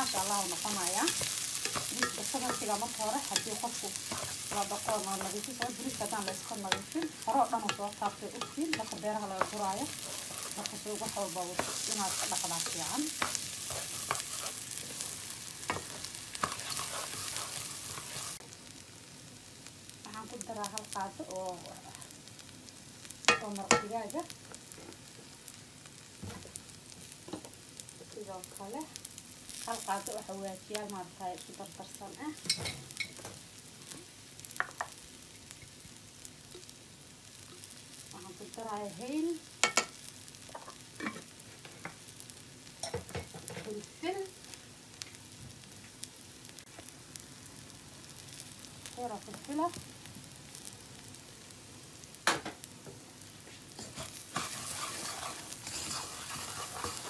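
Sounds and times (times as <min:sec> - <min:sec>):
rice and onion sizzling in oil: 0:00.0 - 0:57.0
wooden spoon scraping a pot: 0:00.1 - 0:18.4, 0:53.8 - 0:57.0.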